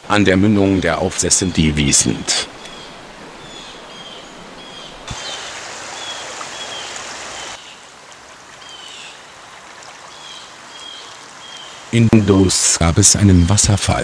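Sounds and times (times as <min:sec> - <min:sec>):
river water running: 0:00.0 - 0:14.0
bird chirping: 0:02.4 - 0:07.8, 0:10.1 - 0:13.8.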